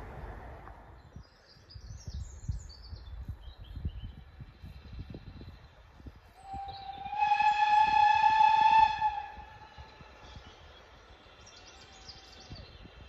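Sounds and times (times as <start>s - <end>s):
faint birdsong: 0.1s - 13.0s
steam locomotive whistle blast: 6.4s - 10.0s.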